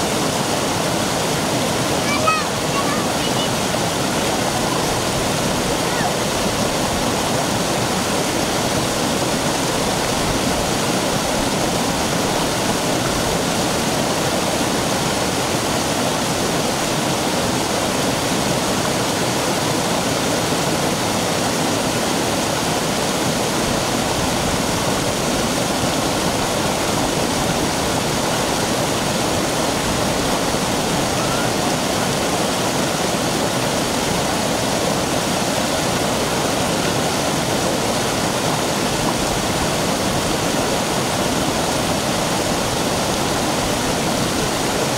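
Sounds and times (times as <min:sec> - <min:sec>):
stream water rushing over rock: 0:00.0 - 0:44.9.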